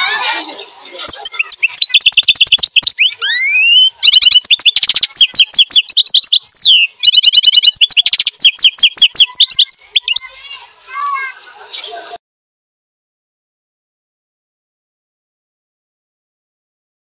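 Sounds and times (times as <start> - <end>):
bird chirping high-pitched: 0.3 - 10.6.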